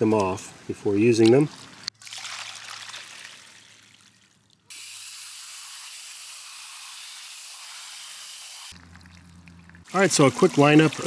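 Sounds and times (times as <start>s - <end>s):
water splashing and trickling: 0.0s - 4.7s, 8.7s - 11.0s
hose nozzle spraying water: 3.0s - 11.0s.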